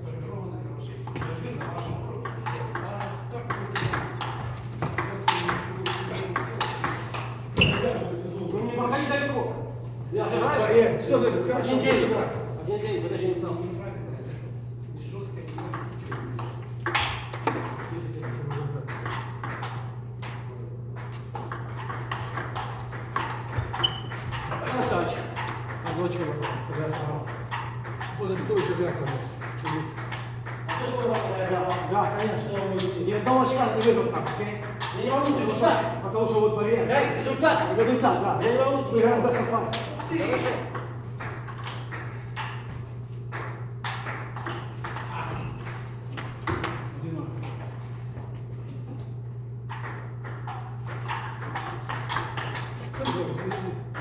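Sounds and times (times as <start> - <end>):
steady low hum: 0.0 - 54.0
table tennis ball bouncing: 1.0 - 8.0, 15.6 - 35.9, 37.4 - 47.0, 49.6 - 54.0.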